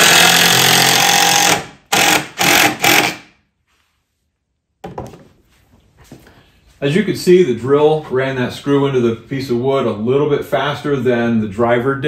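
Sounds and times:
impact driver rattling: 0.0 - 3.3.

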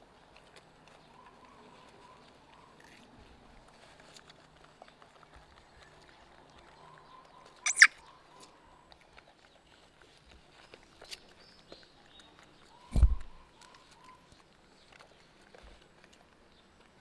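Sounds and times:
monkeys crunching food: 0.0 - 17.0
low thump: 12.9 - 13.4.

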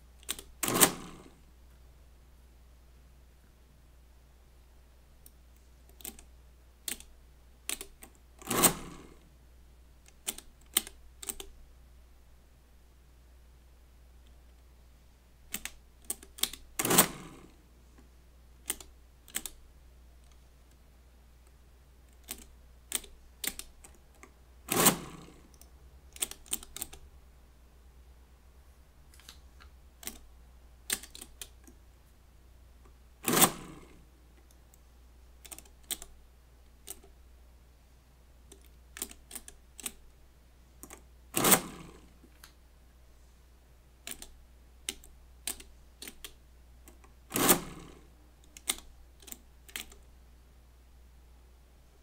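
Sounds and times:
calculator mechanism clatter: 0.2 - 1.2, 7.7 - 9.1, 15.6 - 17.3, 24.7 - 25.4, 41.4 - 42.0, 47.3 - 47.9
calculator keys clicking: 10.1 - 11.5, 18.7 - 19.6, 26.2 - 27.0, 30.9 - 31.7, 35.5 - 36.1, 44.1 - 44.3, 48.5 - 50.0.

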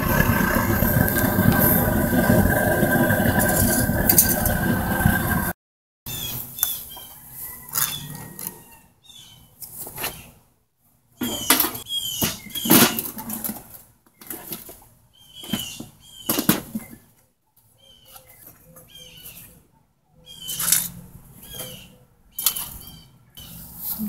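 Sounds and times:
sand scraping and crumbling: 0.0 - 5.5
bird chirping: 8.7 - 9.5, 11.2 - 12.8, 17.8 - 20.8, 21.4 - 23.6.

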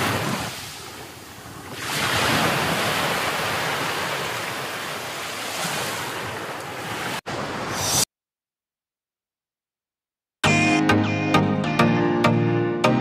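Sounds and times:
rough sea surf breaking: 0.0 - 7.9
wave crashing and washing ashore: 0.0 - 8.1.

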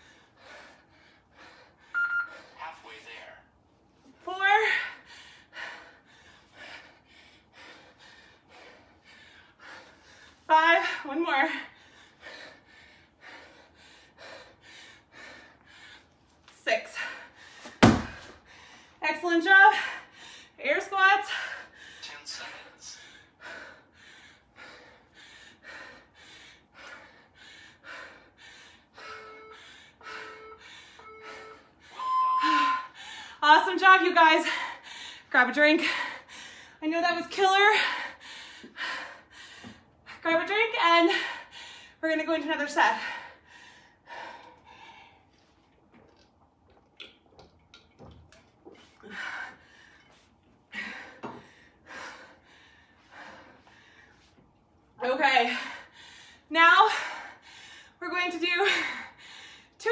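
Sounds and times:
timer short beeps: 2.0 - 2.3, 30.2 - 32.9
long high timer beep: 2.0 - 2.4, 29.1 - 33.0
woman breathing hard: 4.6 - 16.3, 21.2 - 33.4, 37.6 - 40.3, 42.9 - 45.6, 48.7 - 54.4.

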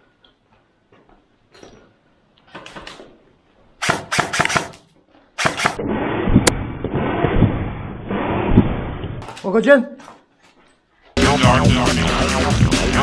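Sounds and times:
airsoft guns firing: 3.8 - 4.8, 5.4 - 5.8.

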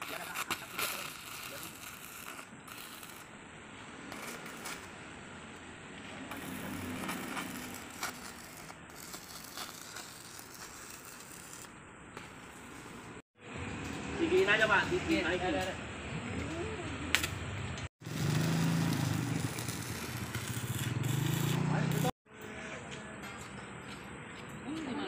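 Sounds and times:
welding arc crackling: 0.0 - 3.3, 3.9 - 5.0, 6.3 - 13.2, 18.0 - 22.2.

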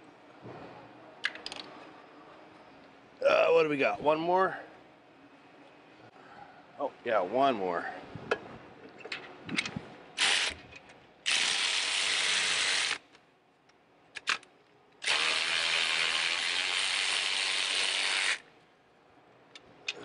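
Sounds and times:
cordless ratchet running: 15.0 - 18.4.

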